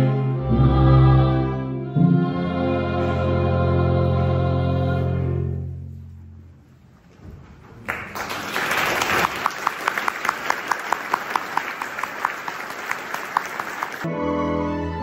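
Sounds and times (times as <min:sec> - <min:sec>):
audience applause: 0:07.8 - 0:14.1.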